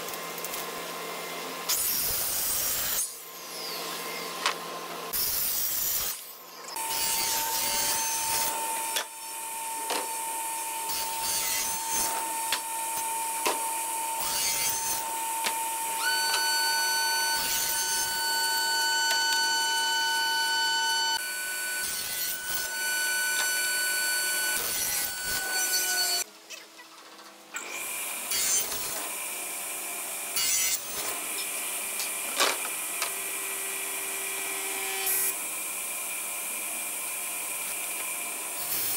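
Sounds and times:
circular saw cutting wood: 0:05.1 - 0:26.3, 0:27.6 - 0:38.9
table saw running: 0:06.7 - 0:26.2.

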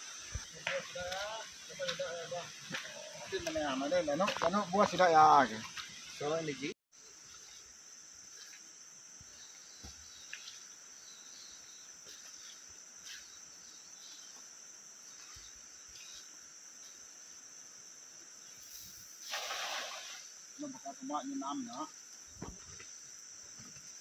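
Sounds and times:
insect chorus drone: 0:00.0 - 0:24.0
cast net splashing water: 0:19.2 - 0:20.3.

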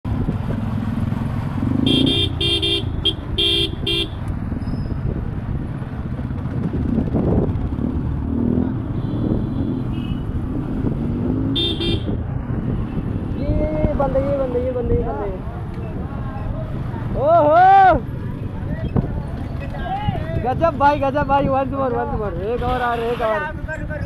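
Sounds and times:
road noise: 0:00.0 - 0:24.0
motorcycle engines: 0:00.1 - 0:24.0
vehicle horn honking: 0:01.9 - 0:04.2, 0:09.0 - 0:10.2, 0:11.6 - 0:12.1.

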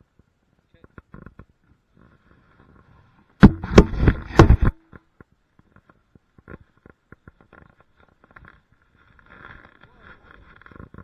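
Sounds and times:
faint scattered taps: 0:00.1 - 0:01.8
hard knocks and clatter: 0:03.4 - 0:04.8.

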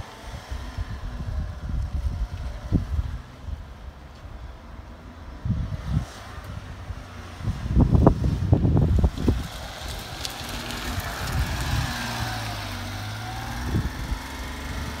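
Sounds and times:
wind buffeting microphone: 0:00.2 - 0:04.6, 0:05.2 - 0:15.0.

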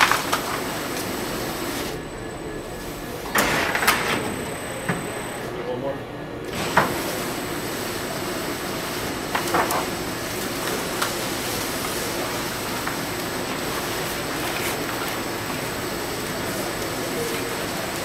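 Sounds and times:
machine hum: 0:00.0 - 0:06.8.

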